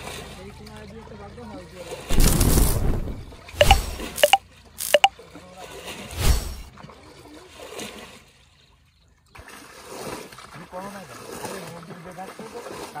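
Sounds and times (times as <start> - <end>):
short high blips: 3.6 - 5.1.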